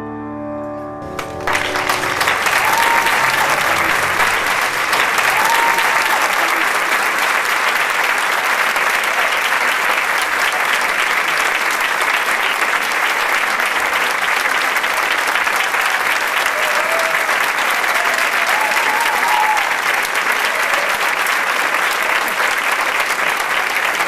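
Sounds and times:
audience applauding: 1.0s - 24.0s.

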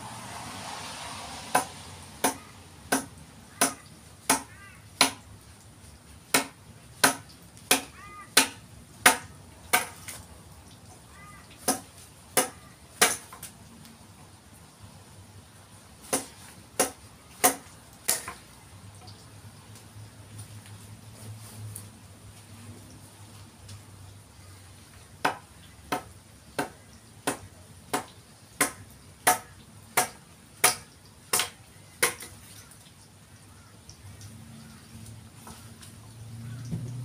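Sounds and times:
hand tool striking wooden log: 1.5s - 5.2s.

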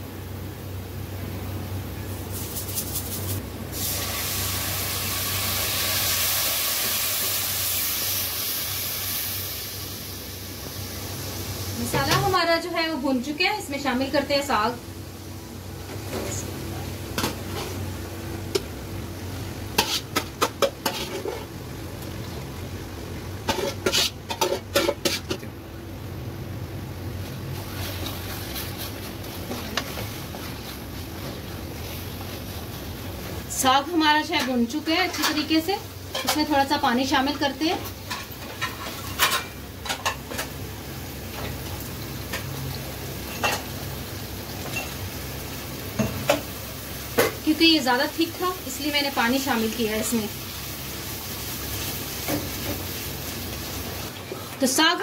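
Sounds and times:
greens sizzling in pot: 0.0s - 25.5s, 27.0s - 55.0s
steady low hum: 8.2s - 39.8s
metal spoon scraping metal pan: 19.8s - 21.5s, 23.5s - 25.4s.

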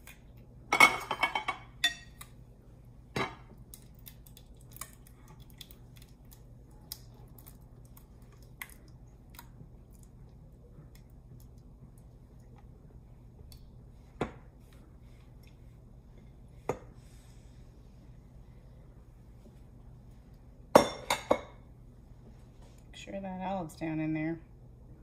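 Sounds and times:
dishes clattering: 0.7s - 2.2s, 20.8s - 21.6s.

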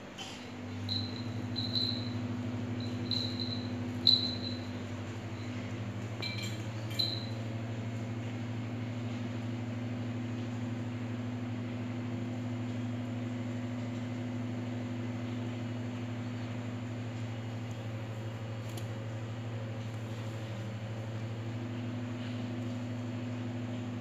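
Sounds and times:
low electrical hum: 0.0s - 24.0s
metal food bowl clinking: 6.2s - 7.4s.

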